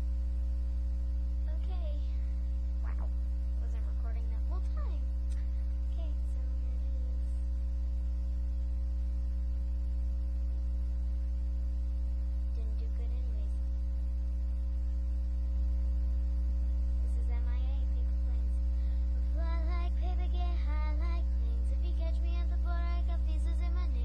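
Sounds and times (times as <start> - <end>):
electrical mains hum: 0.0 - 24.0
girl's voice: 1.5 - 7.4, 12.5 - 13.6, 17.0 - 18.6, 19.3 - 24.0.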